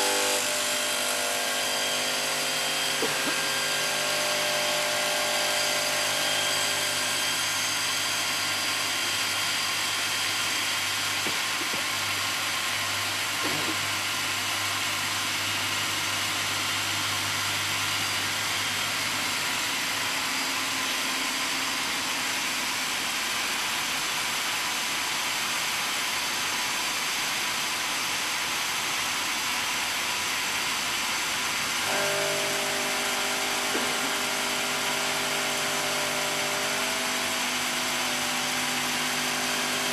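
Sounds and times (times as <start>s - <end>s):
saw blade grinding stone: 0.0s - 13.9s, 31.6s - 39.9s
motor hum: 0.0s - 14.0s.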